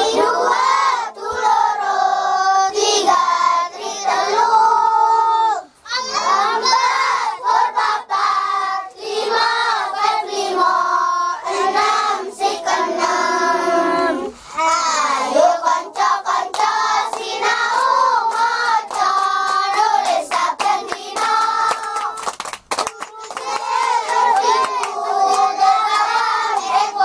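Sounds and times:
children singing together: 0.0s - 22.3s, 23.1s - 27.0s
hand claps: 15.9s - 26.8s.

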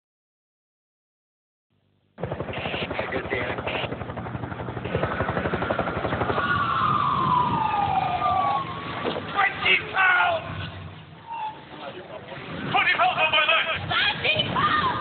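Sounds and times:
motor throbbing chop: 2.2s - 9.8s
fire engine siren wailing: 6.0s - 12.0s.

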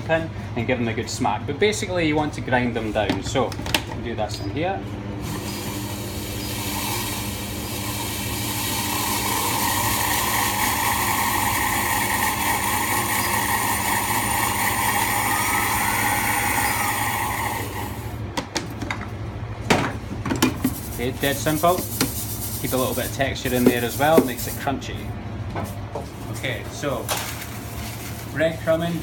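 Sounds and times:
blender motor grinding: 5.2s - 18.2s.

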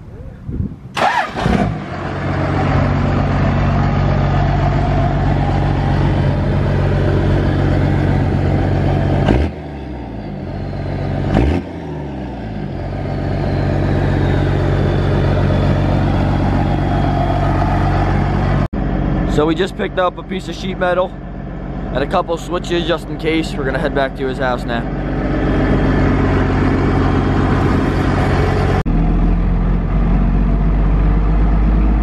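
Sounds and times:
diesel engine running: 0.9s - 32.0s
faint high whistle: 13.0s - 17.6s.

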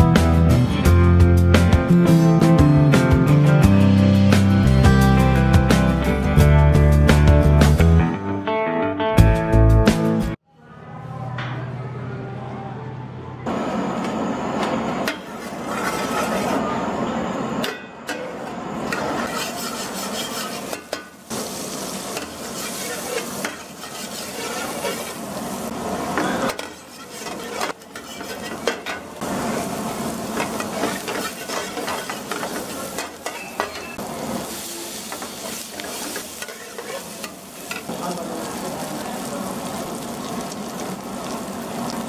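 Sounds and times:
ladle scraping and clinking pan: 15.0s - 16.6s, 17.6s - 21.2s, 22.1s - 25.3s, 26.2s - 29.2s, 30.3s - 34.0s, 34.9s - 37.9s
oil sizzling in frying pan: 18.7s - 42.0s.

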